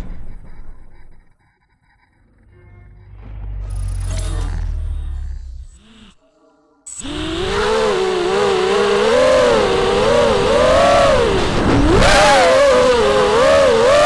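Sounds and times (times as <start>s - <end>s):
quadcopter motors whining: 6.9s - 14.0s.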